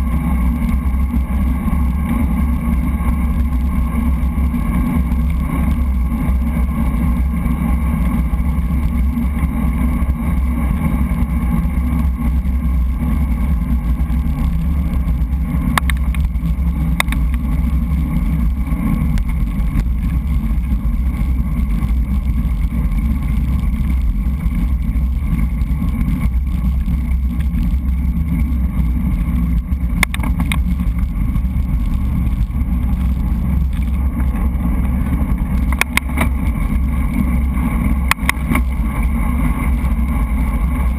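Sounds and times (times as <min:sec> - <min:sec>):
wind rumble on microphone: 0:00.0 - 0:40.9
sharp clicks: 0:15.7 - 0:16.3, 0:30.0 - 0:30.7.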